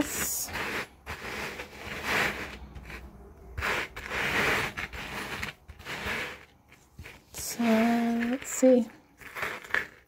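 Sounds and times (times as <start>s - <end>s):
jewelry rustling and scraping: 0.0s - 10.0s.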